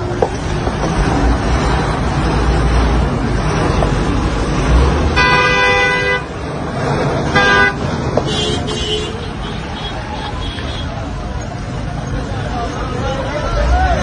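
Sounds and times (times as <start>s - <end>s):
steady traffic noise: 0.0s - 14.0s
car horns honking: 5.0s - 6.4s, 7.2s - 11.2s
higher-pitched car horn: 5.1s - 6.3s, 7.3s - 11.0s.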